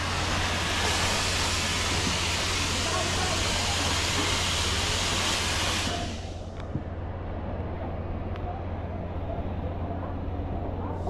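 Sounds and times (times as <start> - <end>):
fire hose spraying water: 0.0 - 6.4.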